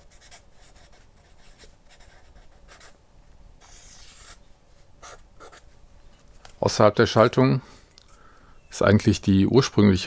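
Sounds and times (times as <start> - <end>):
marker pen scratching on paper: 0.0 - 3.0, 3.6 - 4.4, 5.0 - 5.7.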